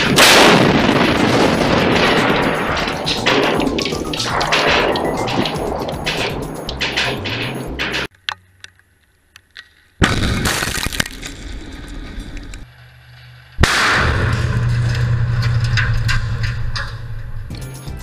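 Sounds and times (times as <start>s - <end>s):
explosive blast: 0.0s - 8.1s, 10.0s - 12.1s, 13.6s - 17.1s
glass breaking and cracking: 0.0s - 8.1s, 10.0s - 11.5s.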